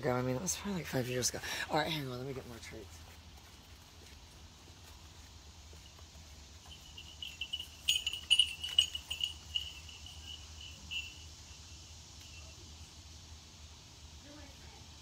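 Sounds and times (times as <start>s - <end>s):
insect chirping trill: 3.8s - 15.0s
sharp clinks: 6.6s - 11.6s.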